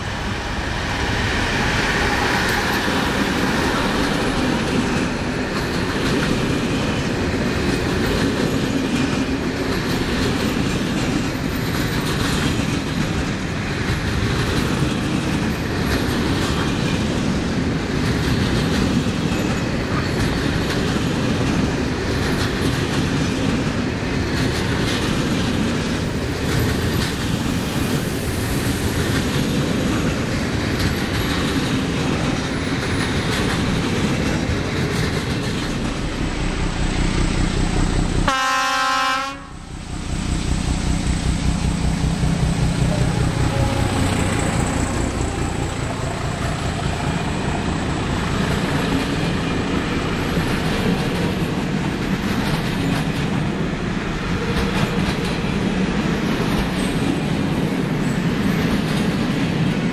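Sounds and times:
freight train wheels clattering: 0.0s - 59.9s
locomotive rumbling past: 0.0s - 59.9s
locomotive horn blast: 38.2s - 39.7s, 42.8s - 45.8s.

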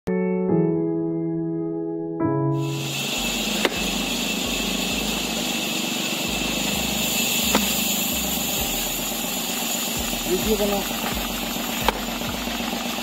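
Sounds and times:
motor hum and hiss: 2.6s - 13.0s
axes chopping log: 3.6s - 3.9s, 7.5s - 7.8s, 11.0s - 12.1s.

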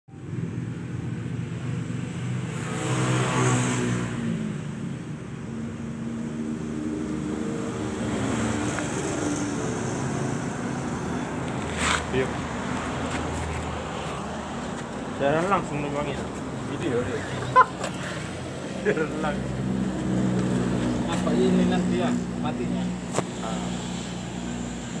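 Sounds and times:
motorcycle engine revving: 2.2s - 4.9s.

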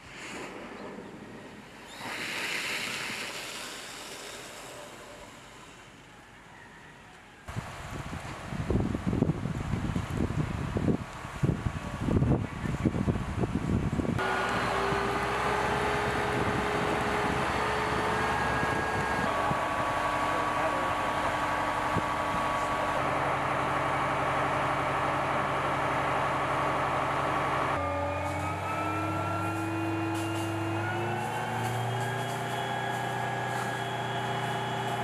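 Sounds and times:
truck engine and pump running: 7.5s - 35.0s
steady whine: 14.2s - 28.4s.

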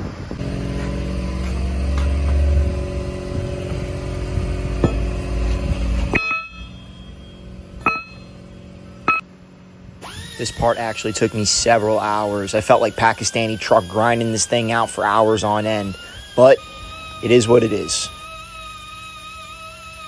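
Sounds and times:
engine humming: 0.0s - 20.0s
metallic clinks: 5.9s - 8.4s.

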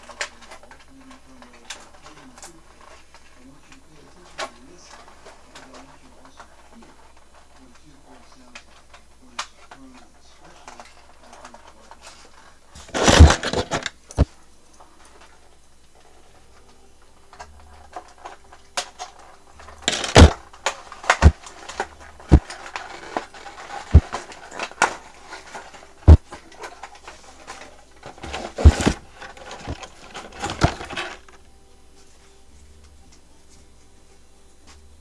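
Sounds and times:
packaging rustling and crinkling: 0.0s - 14.4s, 17.9s - 31.4s
sharp clicks and knocks: 12.8s - 15.3s, 17.4s - 31.4s.

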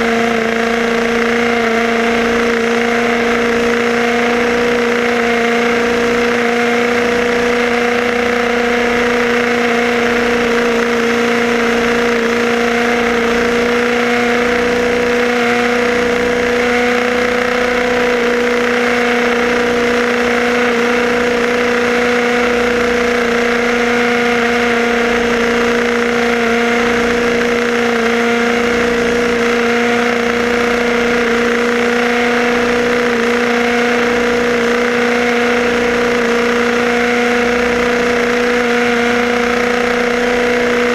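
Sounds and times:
small two-stroke engine buzzing: 0.0s - 40.9s.

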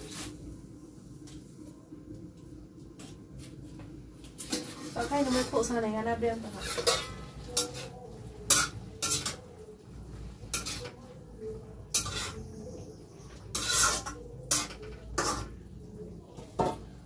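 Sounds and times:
spatula scraping metal pan: 4.5s - 5.8s, 6.4s - 9.4s, 10.4s - 11.0s, 11.9s - 15.6s.

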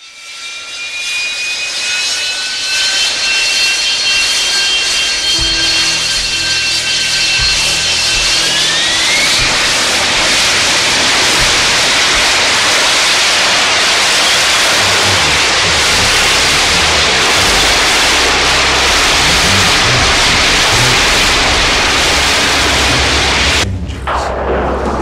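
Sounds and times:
rising tone: 3.7s - 25.0s
low pulsing notes: 4.0s - 25.0s
static rushing noise: 5.2s - 25.0s.

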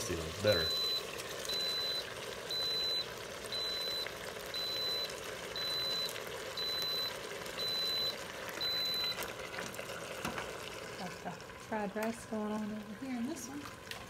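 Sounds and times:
appliance beeping: 0.4s - 11.0s.

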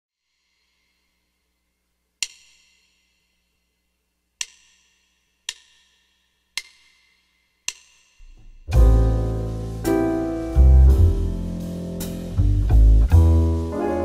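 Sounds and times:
percussion count-in clicks: 4.4s - 8.5s
slow jazz backing track: 8.2s - 14.0s.

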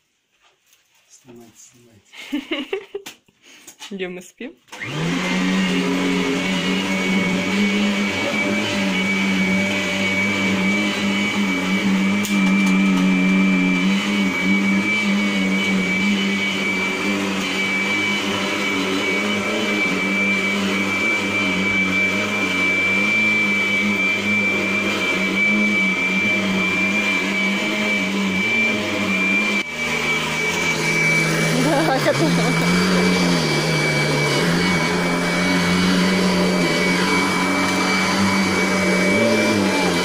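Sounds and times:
vacuum cleaner running: 4.7s - 40.0s.

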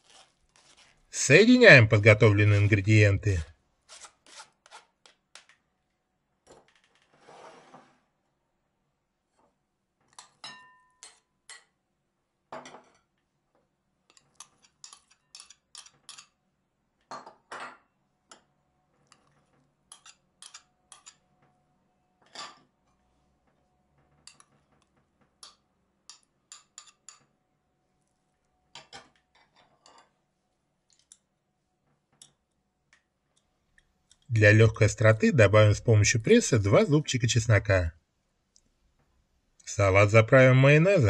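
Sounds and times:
metal spoon clinking on bowls: 10.1s - 11.8s, 19.1s - 21.3s, 25.4s - 27.3s.

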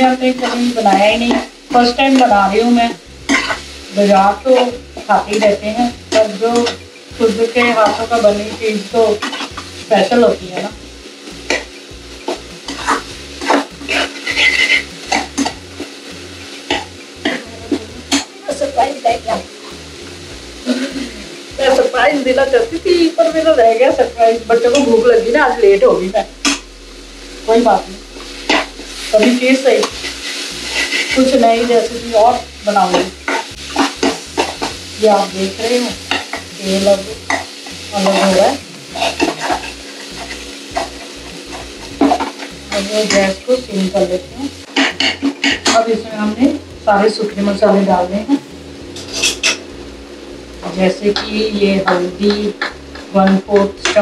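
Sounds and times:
light sizzle of frying: 0.0s - 54.0s
metal spoon scraping a pan: 3.3s - 3.8s, 9.1s - 9.7s, 11.5s - 16.0s, 16.6s - 17.4s, 28.2s - 43.3s, 44.6s - 45.8s, 48.9s - 49.6s.

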